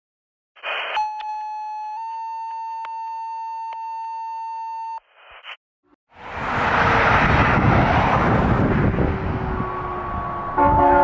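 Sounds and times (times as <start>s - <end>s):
radio static burst: 0.6s - 1.0s.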